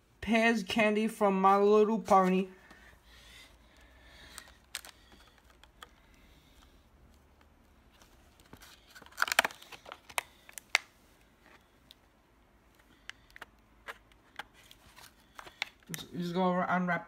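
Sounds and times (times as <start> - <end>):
plastic blister pack crackling: 3.6 - 16.3.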